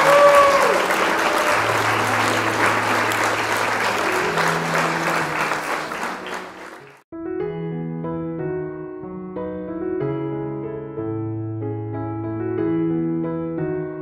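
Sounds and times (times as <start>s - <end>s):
applause: 0.0s - 7.0s
short piano tune: 0.9s - 14.0s.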